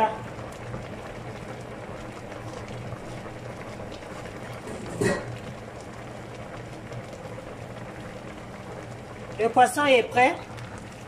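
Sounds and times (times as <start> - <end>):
sauce bubbling at a simmer: 0.0 - 11.0.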